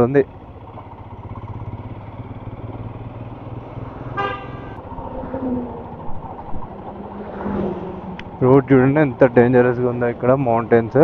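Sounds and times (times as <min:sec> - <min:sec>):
motorcycle engine: 0:00.0 - 0:11.0
road noise: 0:00.0 - 0:11.0
vehicle horn: 0:04.1 - 0:04.8.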